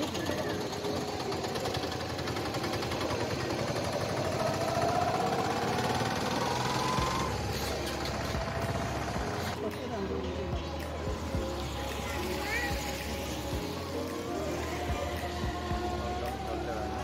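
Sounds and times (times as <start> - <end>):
vehicle engine running: 0.0 - 9.6
rising engine whine: 1.2 - 9.5.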